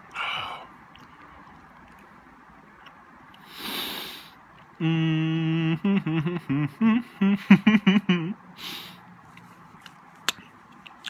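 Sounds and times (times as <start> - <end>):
man humming: 4.8 - 8.4
breath: 8.6 - 9.0.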